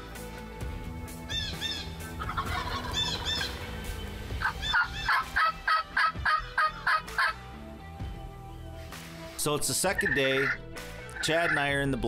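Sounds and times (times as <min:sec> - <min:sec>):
turkey yelping: 0:01.3 - 0:03.6, 0:04.4 - 0:07.4, 0:10.0 - 0:11.7.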